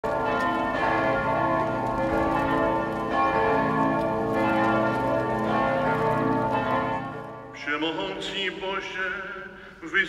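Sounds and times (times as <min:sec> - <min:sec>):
church bells pealing: 0:00.0 - 0:09.0.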